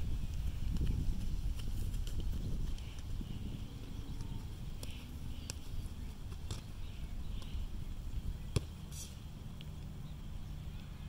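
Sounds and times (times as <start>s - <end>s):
steady low rumble: 0.0s - 11.0s
ball touches on grass: 4.2s - 6.7s, 8.5s - 9.7s.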